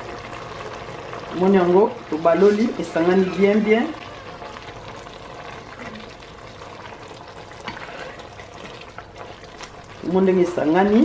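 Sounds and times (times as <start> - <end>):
stew bubbling in a pot: 0.0 - 11.0.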